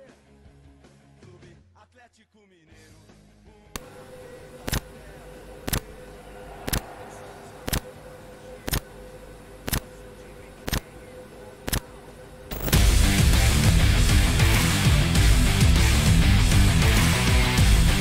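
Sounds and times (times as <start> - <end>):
low drone with held tone: 3.8 - 18.0
sharp ticking: 7.6 - 8.0
heavy rock music with electric guitar: 12.6 - 18.0.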